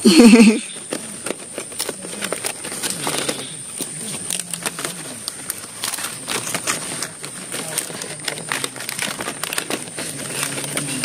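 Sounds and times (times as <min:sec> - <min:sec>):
palm leaves rustling and crackling: 0:00.2 - 0:11.0.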